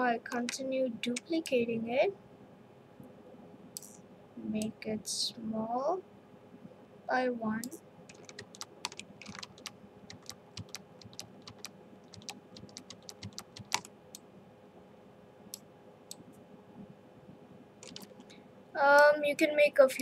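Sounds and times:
keyboard and mouse clicking: 7.6s - 13.9s, 17.8s - 18.4s.

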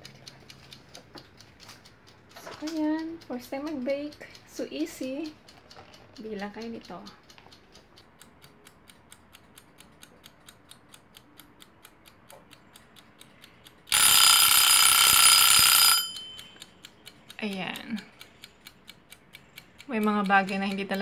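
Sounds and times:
kitchen timer ticking: 0.0s - 21.0s
timer bell ringing: 13.9s - 16.7s.

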